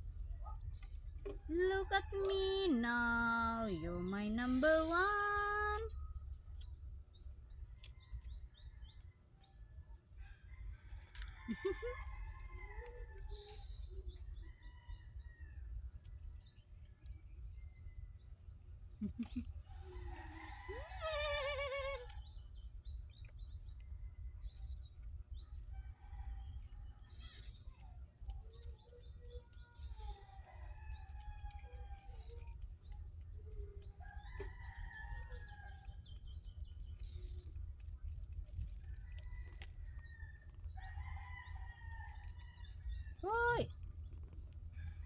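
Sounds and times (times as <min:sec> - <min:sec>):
rooster crowing: 0:10.4 - 0:13.5, 0:19.8 - 0:22.1.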